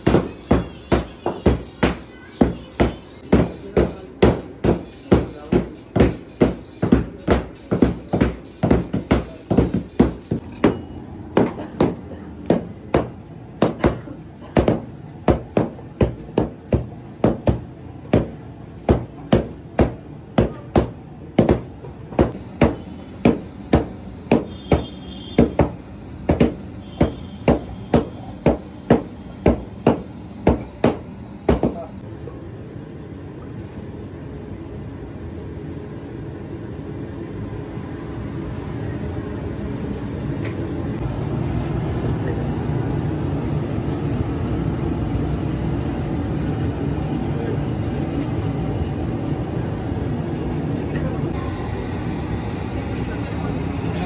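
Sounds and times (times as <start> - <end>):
mallets pounding dough on stone: 0.0 - 32.0.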